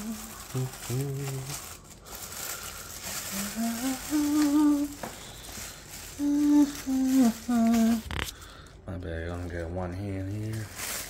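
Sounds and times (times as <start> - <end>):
person humming: 0.0 - 1.7, 3.2 - 5.1, 6.2 - 8.2
plastic wrapping rustling: 0.0 - 11.0.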